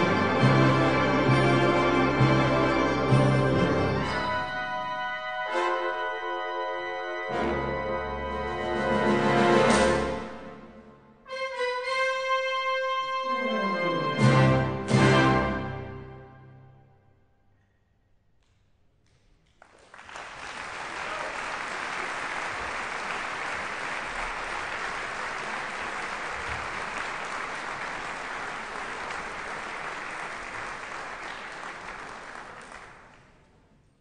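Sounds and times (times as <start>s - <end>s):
audience clapping: 18.4s - 33.6s.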